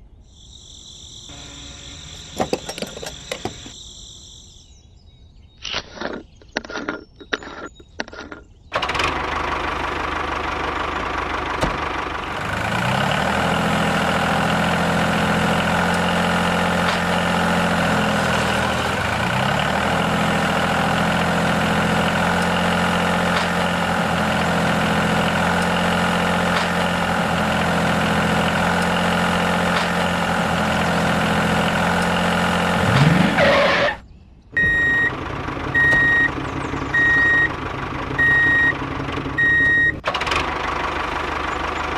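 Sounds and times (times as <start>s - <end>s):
diesel engine chugging: 1.1s - 4.2s, 8.7s - 41.9s
reversing beeps: 34.6s - 35.1s, 35.8s - 37.5s, 38.2s - 38.8s, 39.4s - 40.0s.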